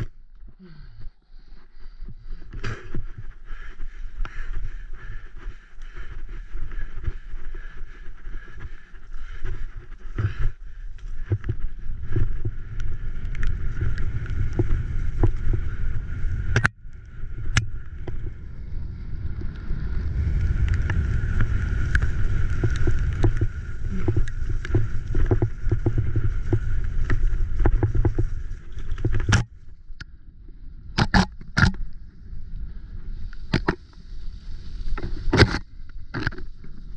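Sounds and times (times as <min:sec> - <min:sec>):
wind buffeting microphone: 0:02.1 - 0:29.4
bike rattling over bumps: 0:02.2 - 0:29.7.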